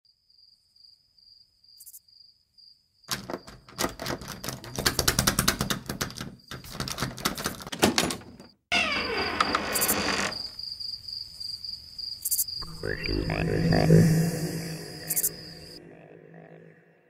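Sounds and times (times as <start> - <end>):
fast clatter of clicks: 3.1 - 8.2
crickets chirping: 8.4 - 16.8.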